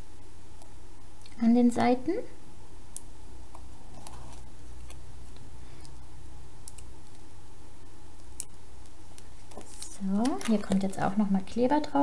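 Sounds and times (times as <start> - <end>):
steady low hum: 0.0 - 12.0
paper crackling: 9.1 - 11.3.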